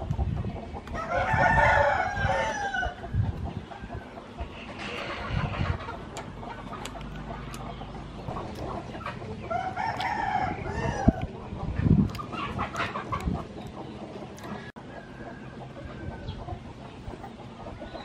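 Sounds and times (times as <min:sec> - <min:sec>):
rooster crowing: 0:01.0 - 0:03.0, 0:09.5 - 0:11.2
sharp clicks: 0:06.1 - 0:08.8.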